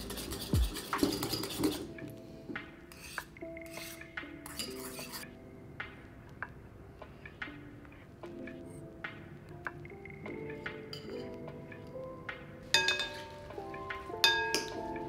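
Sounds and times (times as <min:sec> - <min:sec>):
whisk scraping ceramic bowl: 0:00.0 - 0:01.9, 0:02.9 - 0:05.2
soft background music: 0:00.0 - 0:15.0.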